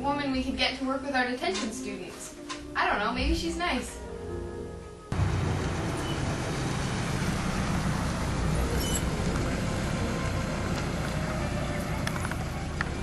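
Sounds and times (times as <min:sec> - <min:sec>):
car engine running: 0:05.2 - 0:13.0.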